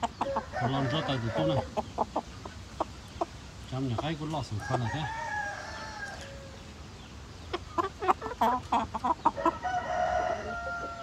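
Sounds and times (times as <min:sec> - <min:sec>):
rooster crowing: 0:00.2 - 0:01.7, 0:04.6 - 0:06.6, 0:09.4 - 0:11.0.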